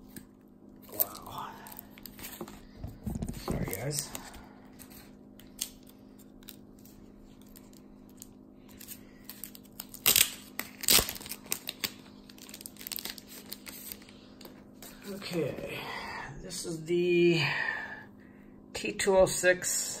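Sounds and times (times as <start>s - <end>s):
plastic packaging crinkling: 0.8s - 15.2s.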